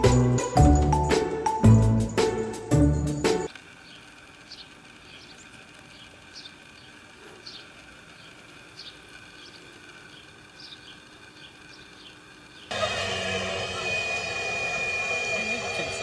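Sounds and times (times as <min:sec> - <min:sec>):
small birds chirping: 0:03.8 - 0:12.7.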